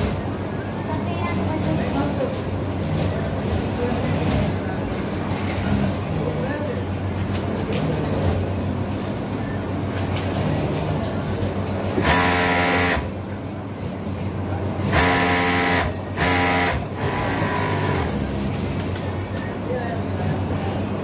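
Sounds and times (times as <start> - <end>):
steady machine hum: 11.6 - 13.6, 14.5 - 21.0
overlock sewing machine running: 12.0 - 13.1, 14.9 - 18.4.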